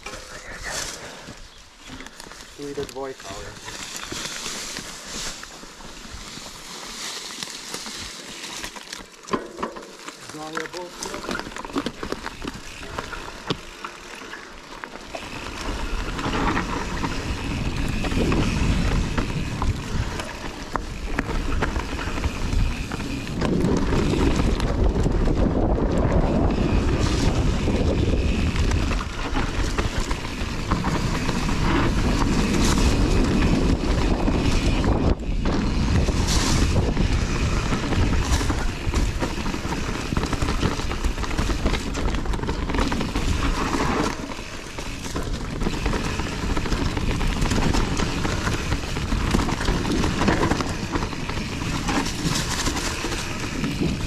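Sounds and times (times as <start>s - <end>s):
bike clicks and rattles: 0.0s - 54.0s
bike tyres on dirt trail: 0.0s - 54.0s
wind buffeting microphone: 15.2s - 54.0s.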